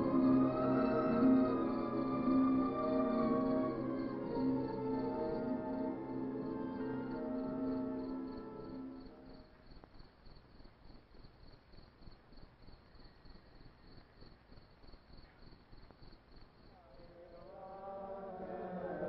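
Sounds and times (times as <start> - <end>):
crickets chirping: 0.0 - 19.0
low hiss: 0.0 - 19.0
singing or chanting: 16.8 - 19.0.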